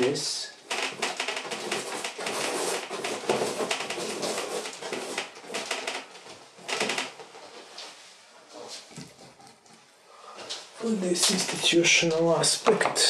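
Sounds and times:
paintbrush scrubbing on canvas: 1.4 - 5.6.

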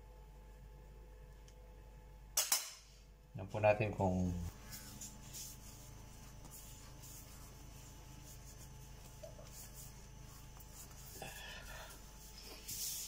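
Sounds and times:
low steady hum: 0.0 - 13.0
dough being kneaded: 4.1 - 13.0.

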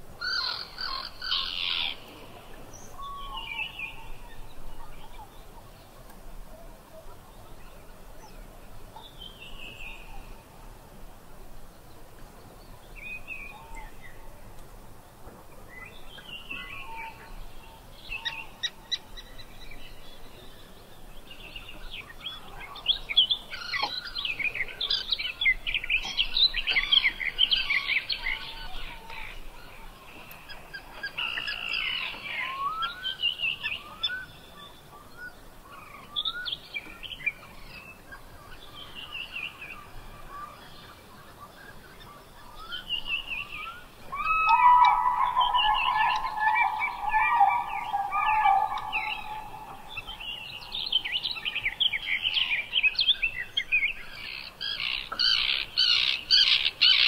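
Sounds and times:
birds chirping and singing: 15.7 - 57.0.

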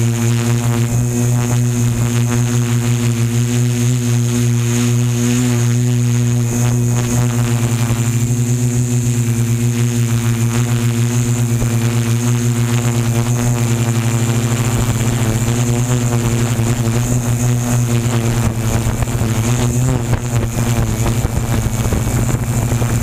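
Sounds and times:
drone motors buzzing: 0.0 - 23.0.

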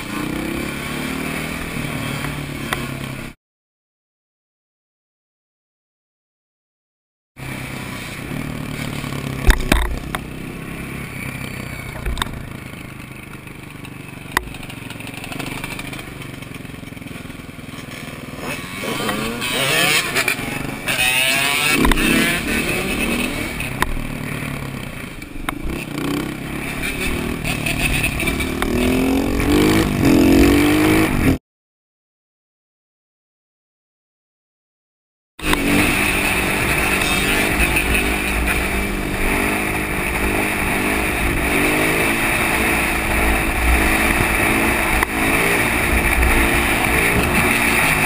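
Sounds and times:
motorcycle engine running: 7.4 - 31.4, 35.4 - 48.0.

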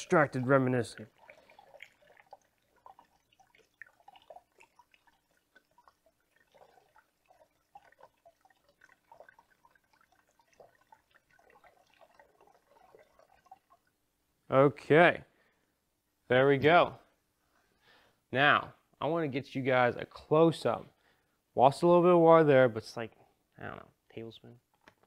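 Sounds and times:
water dripping into plastic bottle: 0.0 - 14.0.

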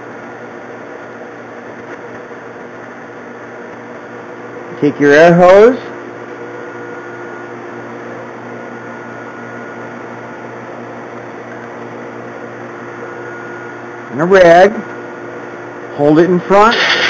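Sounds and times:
mechanical hum with hiss: 0.0 - 17.0
faint high whine: 4.0 - 10.9.

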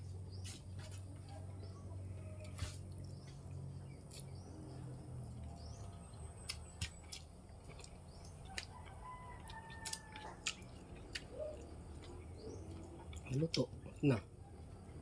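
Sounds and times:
low steady hum: 0.0 - 15.0
mouth clicks and smacks eating: 5.3 - 13.7.

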